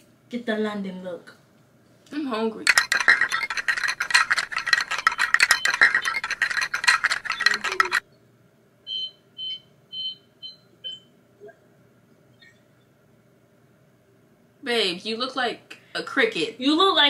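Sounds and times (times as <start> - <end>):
dense clicks and scratches: 2.7 - 8.0.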